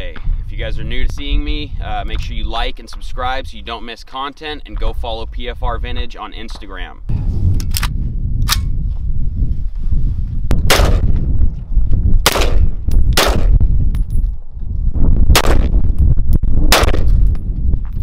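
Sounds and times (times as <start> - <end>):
steady low rumble: 0.0 - 18.0
rifle shots: 10.7 - 11.1, 12.2 - 13.6, 15.3 - 15.7, 16.7 - 17.2.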